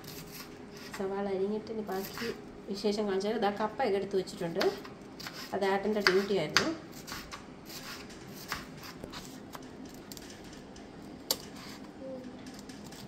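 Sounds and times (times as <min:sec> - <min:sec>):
knife cutting on wooden board: 0:04.6 - 0:09.4.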